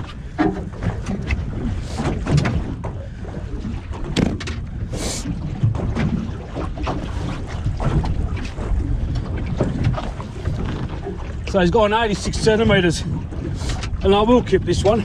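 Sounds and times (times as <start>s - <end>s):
knocks and rustles of fish handling: 0.0s - 11.6s
wind buffeting microphone: 0.0s - 15.0s.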